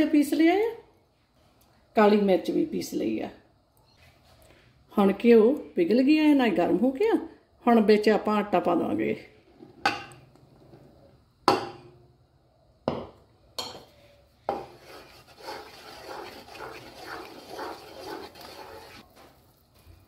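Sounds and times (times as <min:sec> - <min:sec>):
wooden spoon scraping a pot: 0:14.5 - 0:19.1.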